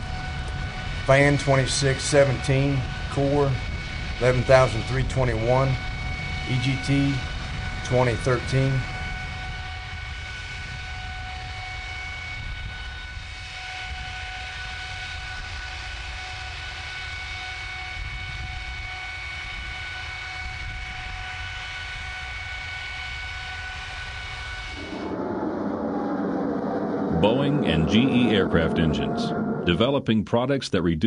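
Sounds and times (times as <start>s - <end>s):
high-pitched engine tones: 0.0s - 15.6s, 23.7s - 30.1s
jet engine rumbling: 0.0s - 30.4s.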